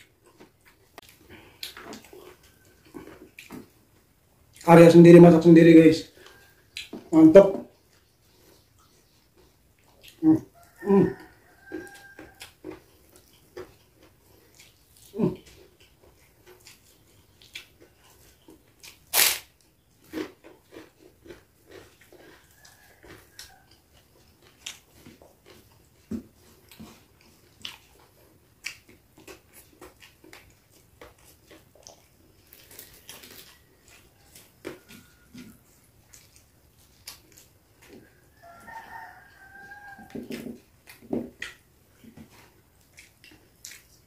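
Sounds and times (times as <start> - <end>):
chewing and lip-smacking: 0.0 - 4.7, 6.1 - 44.0
loud sharp noise: 19.1 - 19.5.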